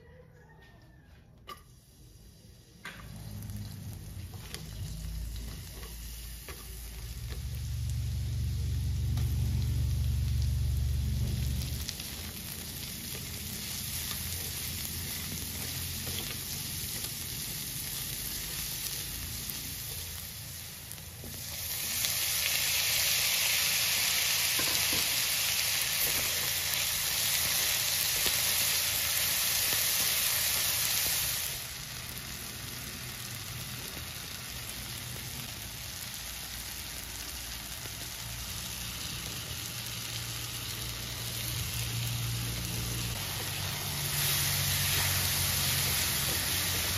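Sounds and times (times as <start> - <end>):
vegetables sizzling in oil: 1.5 - 46.9
spatula stirring in wok: 11.2 - 22.1.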